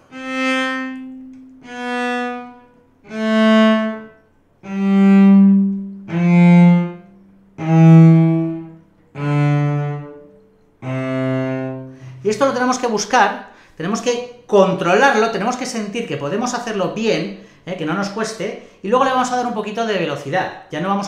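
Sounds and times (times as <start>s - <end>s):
cello bowed scale: 0.0s - 13.2s.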